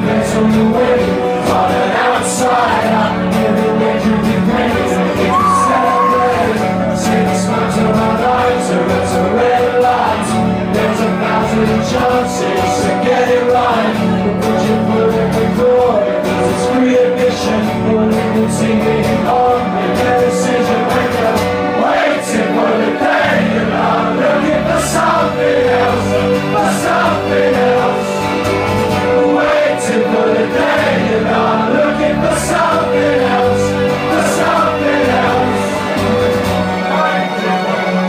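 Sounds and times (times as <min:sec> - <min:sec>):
man singing: 0:00.0 - 0:28.3
acoustic guitar: 0:00.0 - 0:38.0
electric guitar: 0:00.0 - 0:38.0.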